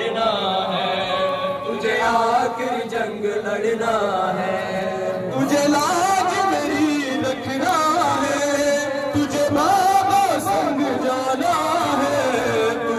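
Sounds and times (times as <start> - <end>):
person chanting a lament: 0.0 - 12.9.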